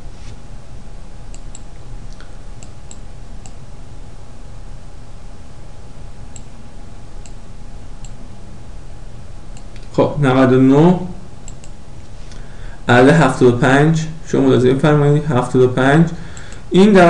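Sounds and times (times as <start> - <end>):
low background hum: 0.0 - 17.0
computer mouse clicks: 1.3 - 3.6, 11.4 - 11.8.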